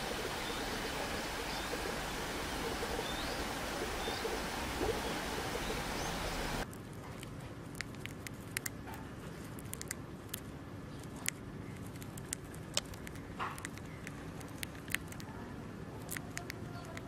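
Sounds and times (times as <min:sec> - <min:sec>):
low steady hiss: 0:00.0 - 0:08.8
hamster nibbling food: 0:06.7 - 0:17.0.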